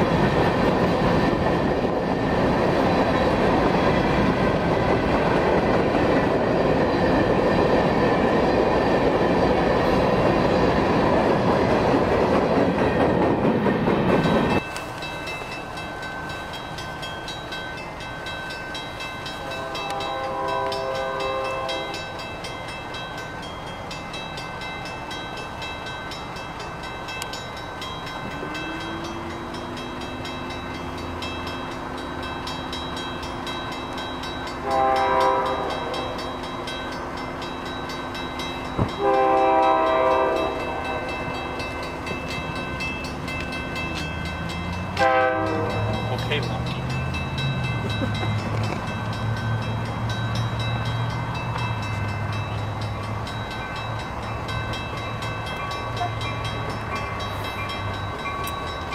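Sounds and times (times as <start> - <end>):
locomotive chime horn: 18.8 - 22.8, 27.2 - 31.7, 32.3 - 36.8, 38.4 - 42.1, 43.4 - 58.9.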